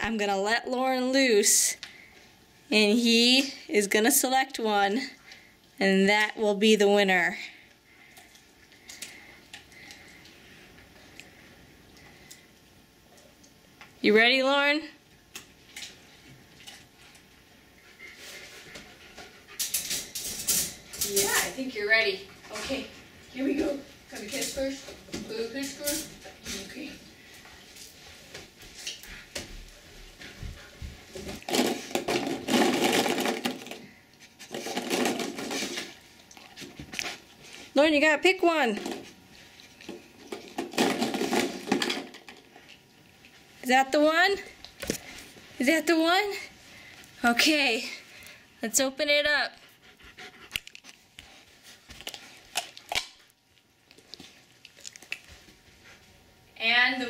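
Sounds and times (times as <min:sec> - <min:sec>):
plastic capsules rattling: 0:31.4 - 0:33.8.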